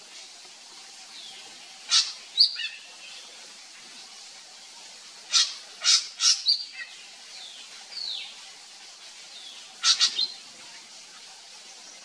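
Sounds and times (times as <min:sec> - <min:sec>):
bird harsh calls: 0:05.3 - 0:06.9, 0:09.8 - 0:10.4.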